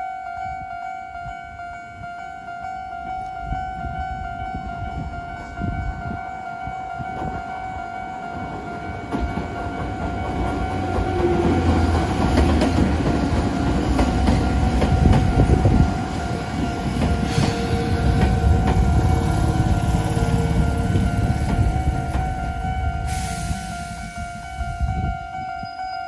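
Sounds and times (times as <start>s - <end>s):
electric train rumbling past: 0.0s - 26.0s
wheels clicking over rail joints: 8.3s - 22.5s
level crossing alarm tone: 13.0s - 26.0s.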